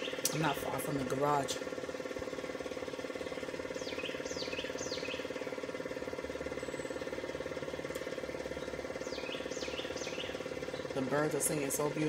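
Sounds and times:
machine humming with throb: 0.0s - 12.0s
small bird chirping: 3.4s - 5.4s, 8.5s - 11.0s.

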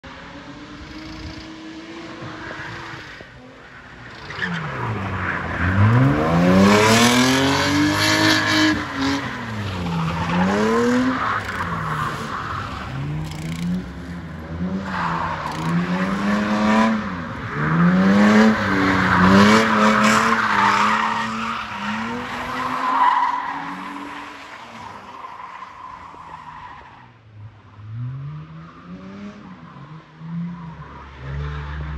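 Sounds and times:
car engine revving: 4.0s - 24.2s.

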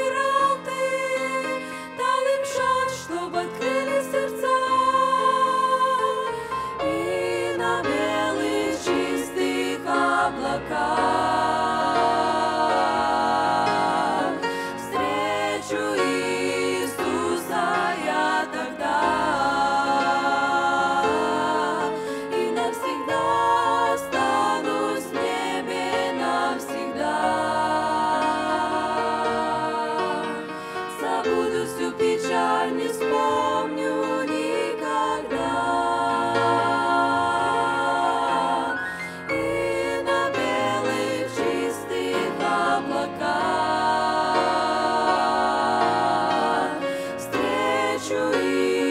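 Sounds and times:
women's vocal group singing a hymn: 0.0s - 48.9s.

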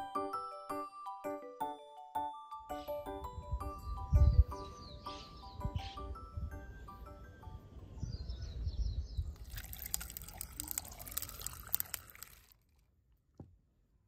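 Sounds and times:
birds chirping: 2.7s - 11.2s
ice cracking: 9.4s - 12.7s
tea pouring over ice: 9.4s - 12.8s.

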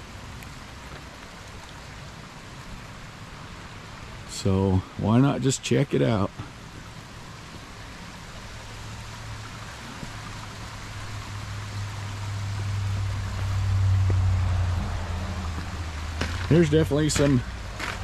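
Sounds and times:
creek and waterfall rushing: 0.0s - 18.0s
low rumble: 11.3s - 17.8s.

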